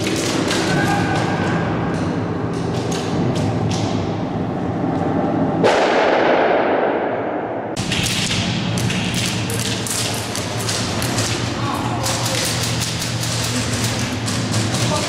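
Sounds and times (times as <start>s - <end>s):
loud bang with echo: 5.6s - 8.8s.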